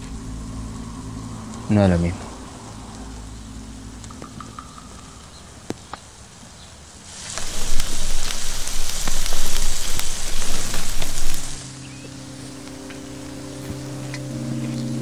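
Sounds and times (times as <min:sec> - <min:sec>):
embers crackling and popping: 0:00.0 - 0:15.0.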